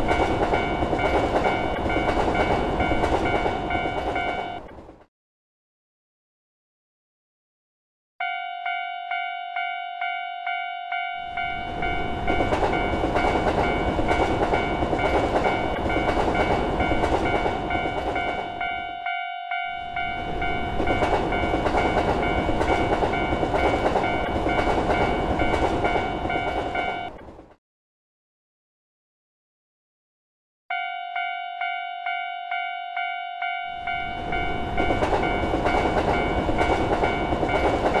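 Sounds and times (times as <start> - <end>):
level crossing bell dinging: 0.0 - 4.7, 8.2 - 27.2, 30.7 - 38.0
trains passing: 0.0 - 5.1, 10.9 - 27.6, 32.5 - 38.0.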